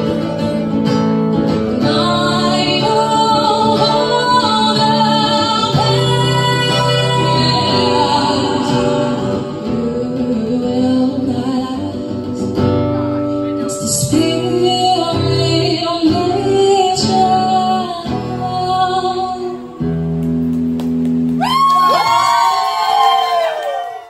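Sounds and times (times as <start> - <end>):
strummed acoustic guitar: 0.0 - 21.4
woman singing: 1.5 - 12.7, 13.6 - 20.0.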